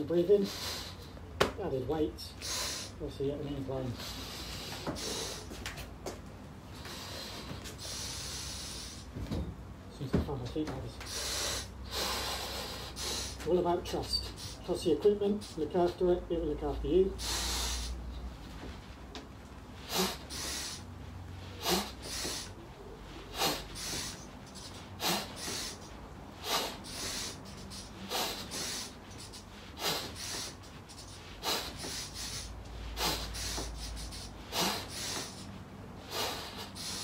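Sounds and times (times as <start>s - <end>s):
man breathing hard through mask: 2.2s - 3.1s, 3.9s - 5.6s, 6.7s - 9.2s, 11.0s - 14.8s, 17.1s - 18.2s, 19.8s - 37.0s.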